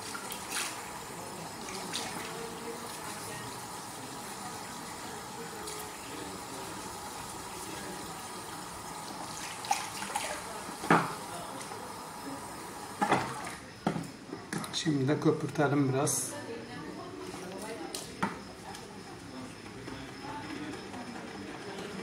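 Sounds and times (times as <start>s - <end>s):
tap water running into sink: 0.0s - 13.6s.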